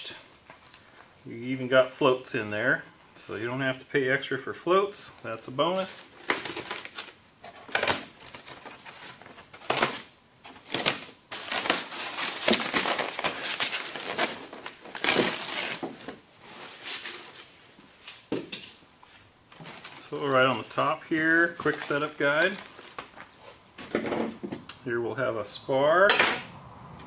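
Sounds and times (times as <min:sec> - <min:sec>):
plastic wrap crinkling: 0:05.2 - 0:18.4, 0:19.1 - 0:23.9.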